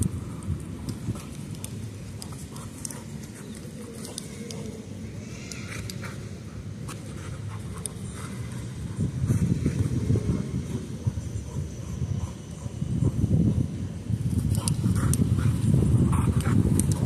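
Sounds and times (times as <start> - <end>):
light clicks: 0.0 - 4.8
street traffic: 0.0 - 17.0
wind rumble: 0.0 - 17.0
dog panting: 5.7 - 13.7, 14.6 - 17.0.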